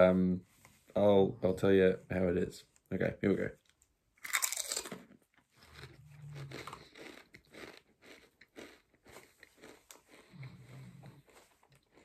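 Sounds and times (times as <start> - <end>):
person chewing crisp chips: 4.2 - 12.0.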